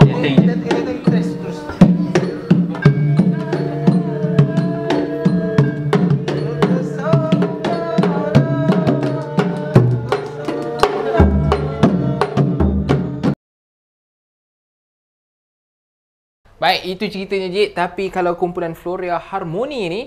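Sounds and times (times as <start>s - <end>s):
long held sung notes: 0.0s - 13.3s.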